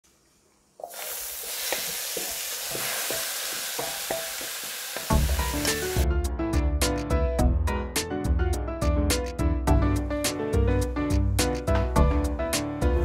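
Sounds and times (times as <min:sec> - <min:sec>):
food sizzling in frying pan: 0:00.8 - 0:06.0
background music with bass: 0:05.1 - 0:13.0.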